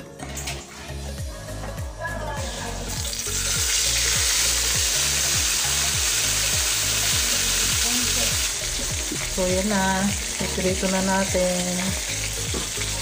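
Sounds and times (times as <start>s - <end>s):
bread sizzling in hot oil: 2.9s - 13.0s.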